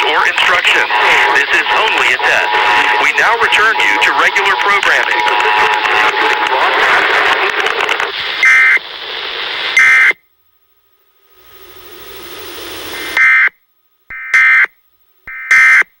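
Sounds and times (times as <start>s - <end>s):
shrill buzzing data tones: 0.0s - 6.6s, 11.0s - 14.6s.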